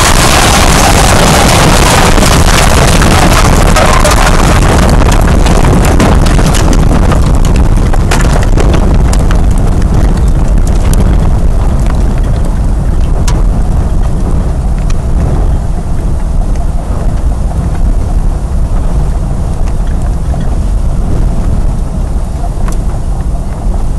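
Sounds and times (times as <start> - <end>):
debris cracking and clattering: 0.0 - 13.4
wind buffeting microphone: 0.0 - 23.9.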